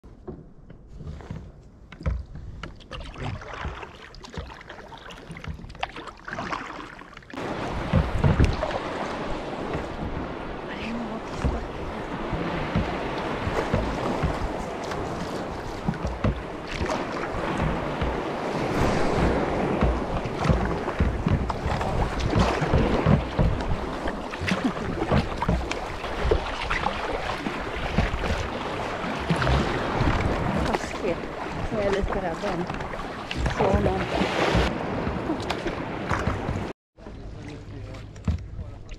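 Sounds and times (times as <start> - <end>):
water lapping around kayak: 0.0 - 38.9
small splashes and knocks: 0.1 - 38.9
rush of choppy water: 2.0 - 38.9
wind buffeting microphone: 7.4 - 36.7.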